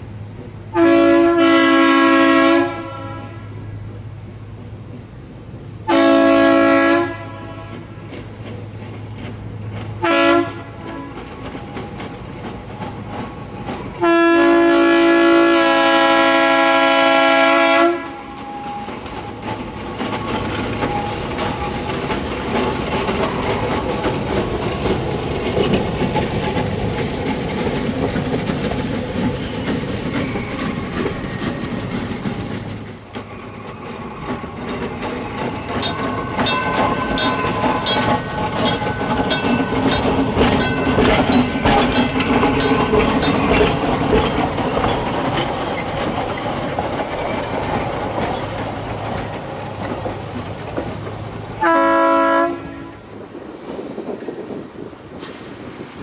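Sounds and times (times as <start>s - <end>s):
trolley car motors humming: 0.0s - 56.0s
short horn blast: 10.0s - 11.1s.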